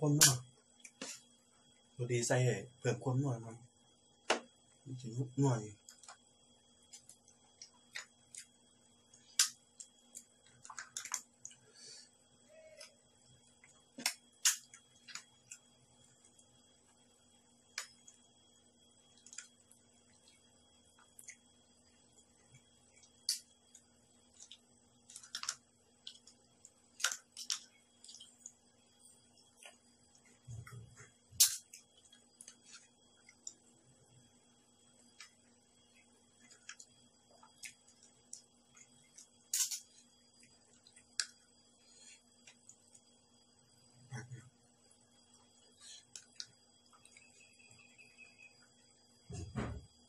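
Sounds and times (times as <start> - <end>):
faint electrical hum: 0.0 - 50.0
eating clicks and smacks: 6.9 - 11.6, 22.5 - 28.6, 35.1 - 41.5, 46.0 - 47.3.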